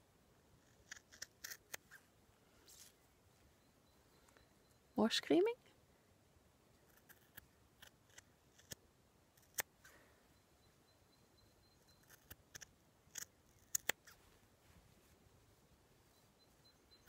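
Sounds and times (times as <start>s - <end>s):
scissors snipping wool: 12.0s - 14.1s.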